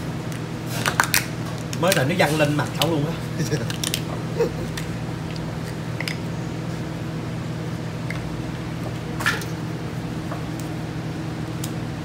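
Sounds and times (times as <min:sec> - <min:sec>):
steady background hum: 0:00.0 - 0:12.0
lobster shell cracking: 0:00.8 - 0:02.1, 0:03.5 - 0:04.1
lobster shell squishing: 0:00.8 - 0:06.2.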